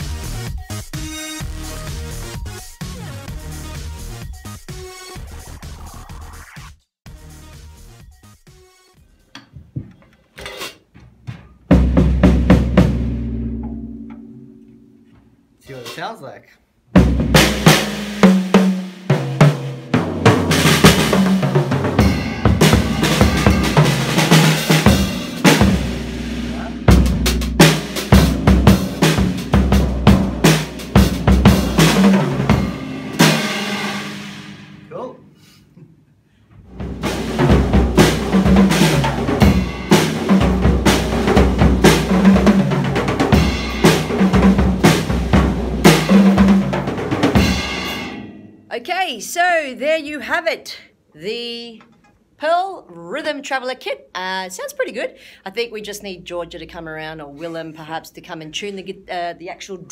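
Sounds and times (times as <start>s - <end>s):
drum kit beat: 0.0s - 9.8s, 10.4s - 16.2s, 16.9s - 35.4s, 36.6s - 48.4s
tom drum strikes: 11.7s - 15.4s, 16.9s - 35.3s, 36.7s - 48.6s
person talking: 15.6s - 16.6s, 34.9s - 35.2s, 48.7s - 51.8s
crashing cymbals: 22.0s - 29.6s.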